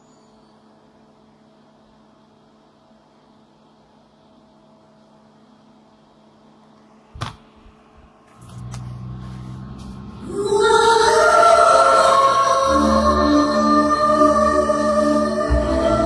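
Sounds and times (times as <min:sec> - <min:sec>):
low hum from speakers: 0:00.0 - 0:16.0
film song with held tones: 0:09.0 - 0:16.0.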